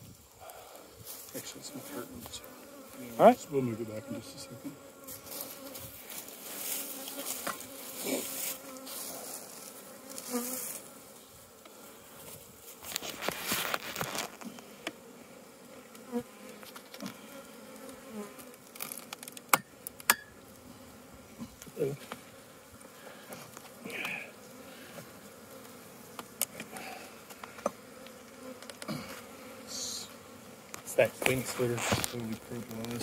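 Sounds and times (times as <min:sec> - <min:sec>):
bees buzzing: 0:00.4 - 0:33.0
hive tool scraping and clicking: 0:12.8 - 0:15.0, 0:15.9 - 0:20.4, 0:23.3 - 0:24.2, 0:24.9 - 0:29.3, 0:30.7 - 0:33.0.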